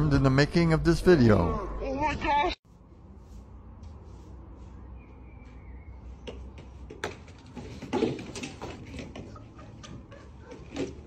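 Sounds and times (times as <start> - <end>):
knocks and scuffling: 6.1 - 11.0
chair crashing onto paving: 7.0 - 9.3.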